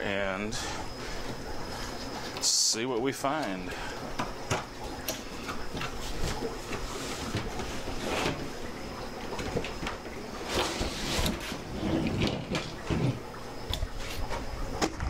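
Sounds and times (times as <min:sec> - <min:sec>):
cardboard scraping and rustling: 0:10.4 - 0:13.2.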